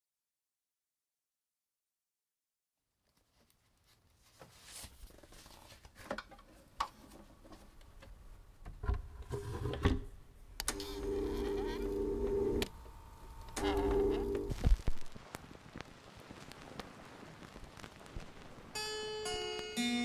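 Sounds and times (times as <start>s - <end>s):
record stylus clicks and crackle: 10.6s - 18.6s
steady buzzing hum: 10.7s - 14.9s.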